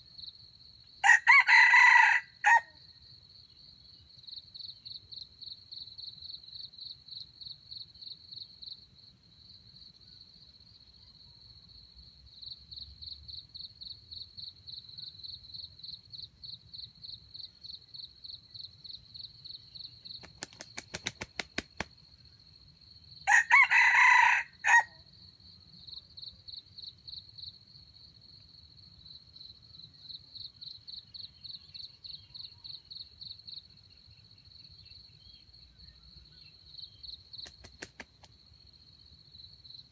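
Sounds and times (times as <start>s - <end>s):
rooster crowing: 1.0s - 2.8s, 23.2s - 25.0s
insect chirping in fast pulses: 12.4s - 24.8s, 29.1s - 39.9s.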